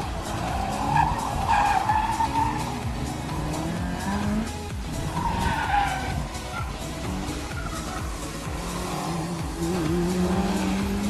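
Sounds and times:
car engine revving: 0.0 - 11.0
tyres squealing: 0.0 - 11.0.

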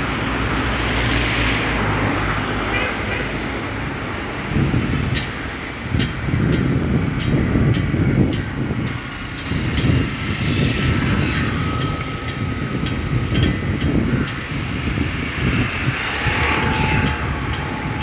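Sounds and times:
low outdoor rumble: 6.3 - 18.0.

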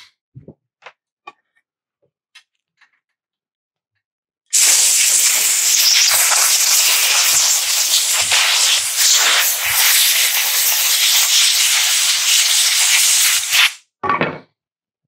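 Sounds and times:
compressed air blow gun hissing: 4.5 - 13.8.

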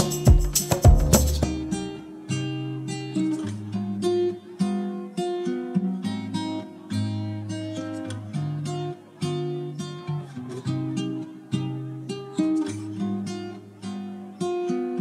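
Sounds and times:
bass line: 0.0 - 1.8
acoustic guitar plucked notes: 0.0 - 15.0.

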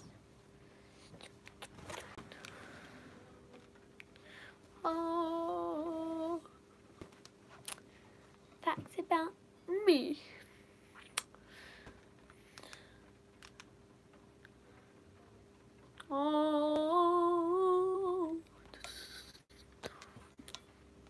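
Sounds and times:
girl humming: 4.8 - 6.6, 16.0 - 18.4.

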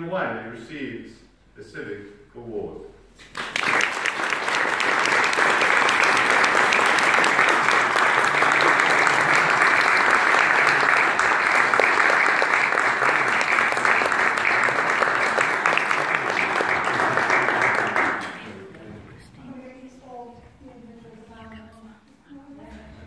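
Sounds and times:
audience applauding: 3.2 - 18.8.

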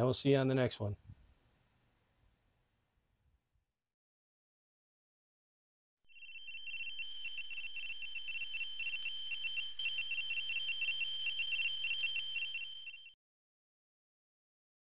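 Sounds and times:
electronic trilling tone: 6.1 - 13.1.

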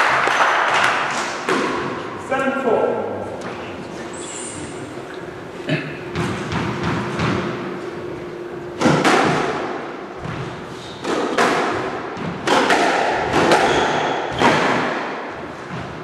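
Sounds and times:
squash ball hits echoing: 0.0 - 2.2, 5.7 - 16.0.

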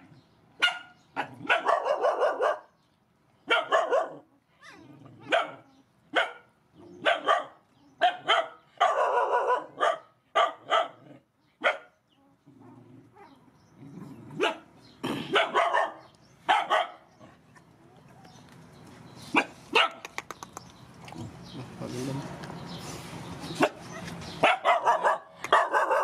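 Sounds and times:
dog barking: 0.6 - 2.8, 3.5 - 4.3, 5.2 - 12.0, 14.4 - 14.7, 15.3 - 17.1, 19.3 - 20.0, 23.6 - 23.8, 24.4 - 26.0.

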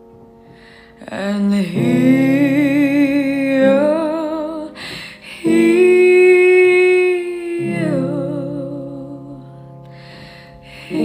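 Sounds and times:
quick breath: 0.5 - 1.0, 4.8 - 5.2, 9.9 - 10.9.

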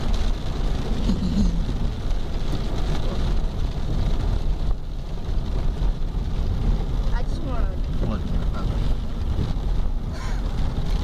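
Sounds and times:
car road and engine rumble: 0.0 - 11.0
rain hissing on car: 0.0 - 11.0.

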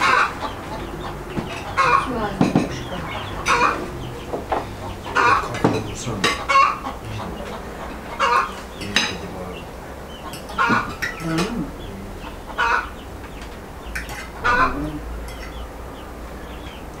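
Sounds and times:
chickens clucking: 0.0 - 17.0
forks clinking on plates: 10.3 - 11.6, 13.9 - 14.6, 15.2 - 15.6.

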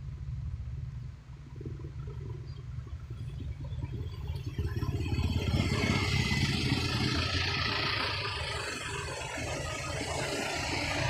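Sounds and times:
traffic passing close by: 3.0 - 11.0.

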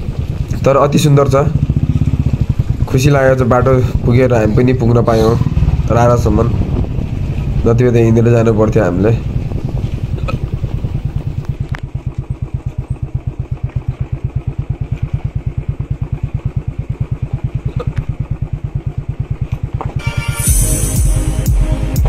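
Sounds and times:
motorcycle engine at low revs: 0.0 - 20.0
background music: 20.0 - 22.0.

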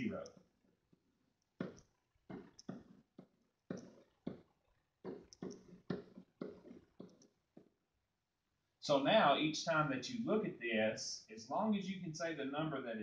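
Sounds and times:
pen scraping on whiteboard: 5.1 - 7.7.

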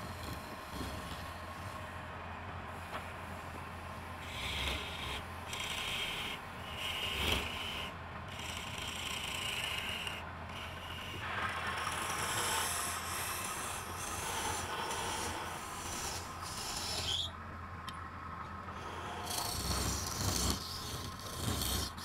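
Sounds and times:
chisel scraping spinning wood: 0.0 - 1.9, 2.9 - 17.4, 18.6 - 22.0
wood lathe hum: 0.0 - 22.0.

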